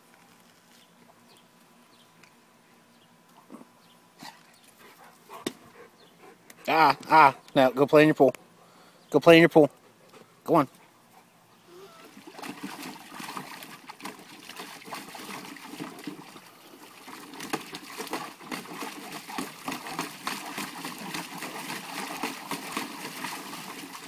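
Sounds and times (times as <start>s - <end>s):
dog splashing in water: 12.0s - 24.0s.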